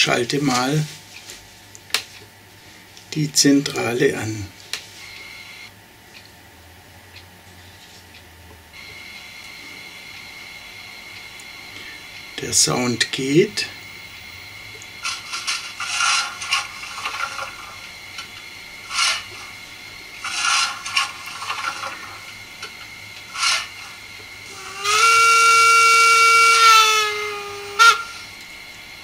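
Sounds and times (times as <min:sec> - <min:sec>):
steam whistle: 0:24.5 - 0:28.4.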